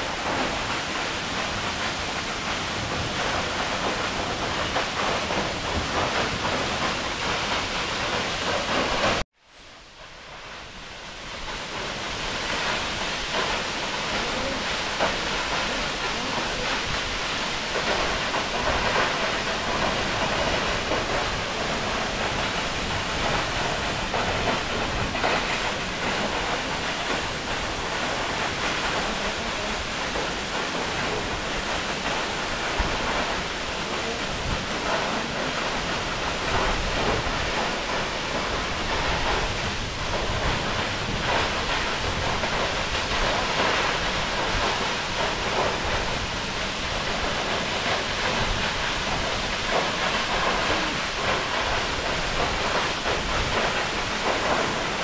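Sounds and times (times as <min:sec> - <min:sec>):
waterfall rushing: 0:00.0 - 0:55.0.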